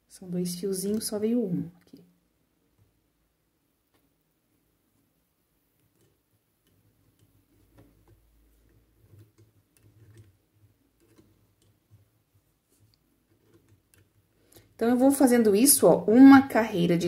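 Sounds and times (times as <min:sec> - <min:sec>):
loom hook clicking on plastic pegs: 0:05.8 - 0:10.4.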